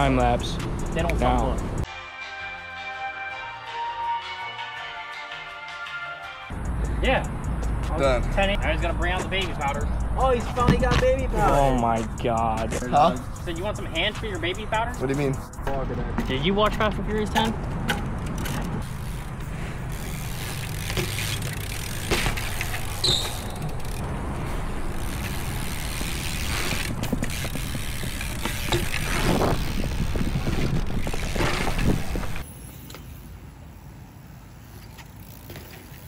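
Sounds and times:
bike tyres rumbling on concrete: 7.5 - 36.0
bike hitting the ground: 10.4 - 11.4, 17.2 - 33.2, 34.7 - 36.0.

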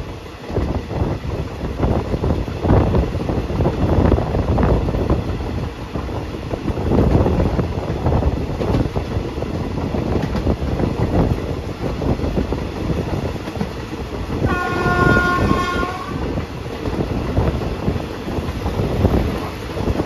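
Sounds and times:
train rumbling: 0.0 - 20.0
wheels rattling on track: 0.0 - 20.0.

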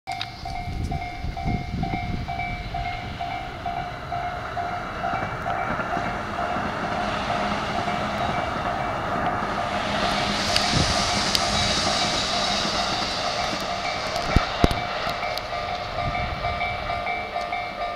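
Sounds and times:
train wheels rumbling on rails: 0.1 - 17.9
level crossing bell ringing: 14.8 - 17.9.

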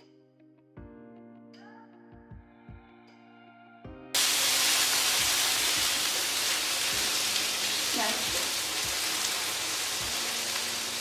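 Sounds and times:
beef sizzling on griddle: 4.2 - 11.0.

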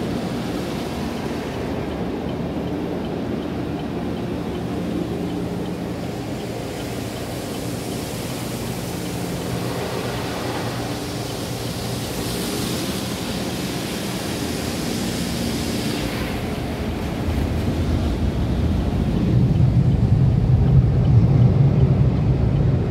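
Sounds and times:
blower dryers low rumble: 0.0 - 22.9
water spray hissing on car: 4.2 - 19.1.

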